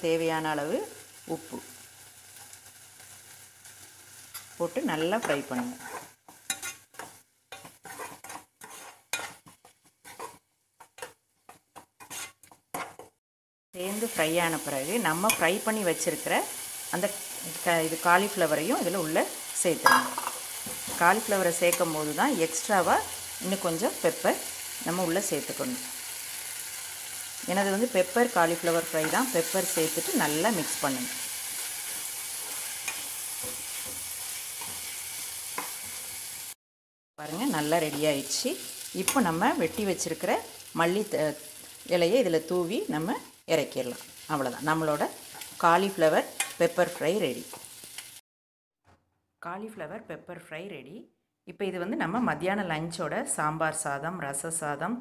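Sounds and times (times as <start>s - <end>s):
vegetables sizzling in oil: 0.0s - 13.2s, 13.8s - 36.6s, 37.2s - 48.2s
spatula scraping frying pan: 5.2s - 13.2s.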